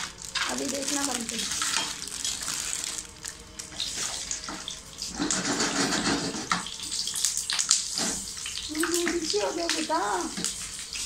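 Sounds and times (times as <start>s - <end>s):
fryums sizzling in hot oil: 0.0s - 11.0s
metal spatula scraping pan: 4.0s - 6.7s.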